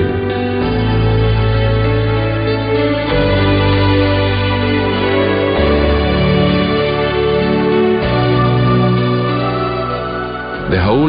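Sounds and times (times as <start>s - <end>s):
sustained organ chords: 0.0s - 11.0s.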